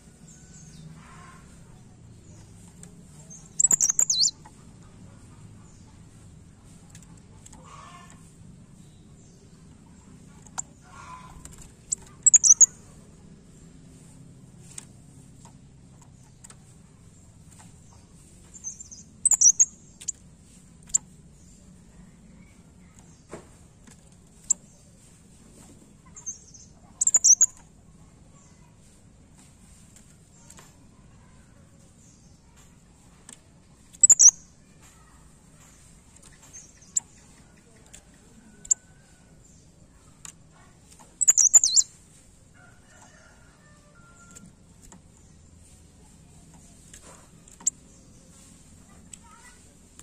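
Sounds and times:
songbird chirping: 0.0s - 50.0s
bird high sharp chirps: 3.3s - 4.5s, 11.9s - 12.8s, 18.6s - 20.2s, 26.1s - 27.6s, 33.9s - 34.5s, 41.2s - 42.0s.

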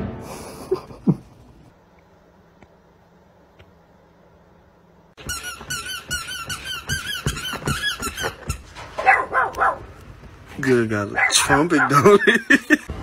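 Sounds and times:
high-pitched squeaks: 5.2s - 9.2s.

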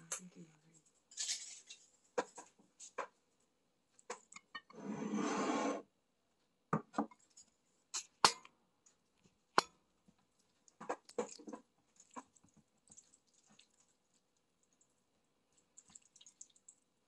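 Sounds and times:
rustling scraping noise: 4.7s - 5.8s.

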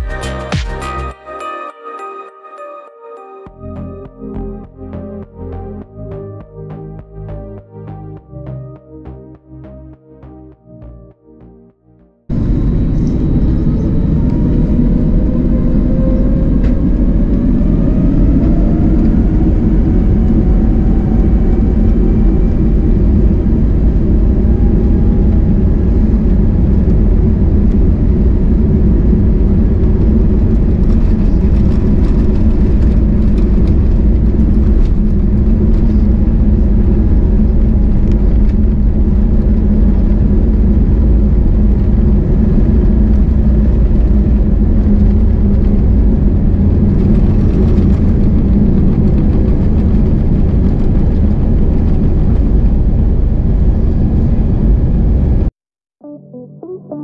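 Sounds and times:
loud continuous rumble: 12.2s - 55.5s
jet engines whining: 12.3s - 55.5s.

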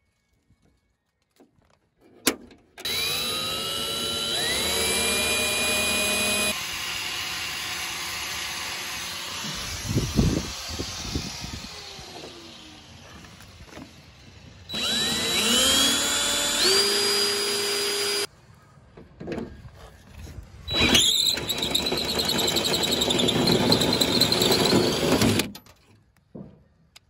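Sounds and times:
power drill drilling metal: 2.8s - 13.9s, 14.6s - 18.3s, 20.7s - 25.6s.

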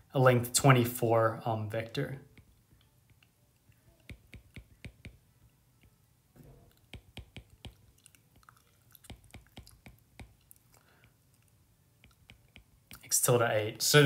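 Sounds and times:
stylus clicking on glass screen: 2.3s - 8.3s.

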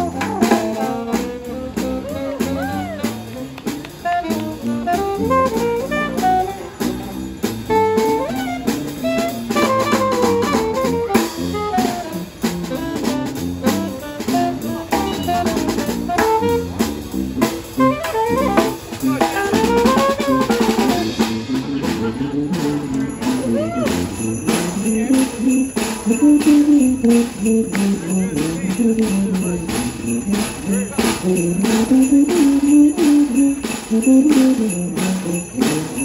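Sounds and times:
snare drum beat: 0.0s - 6.4s, 11.8s - 21.1s
saxophone: 0.0s - 36.0s
trombone: 0.0s - 36.0s
tuba: 0.0s - 36.0s.

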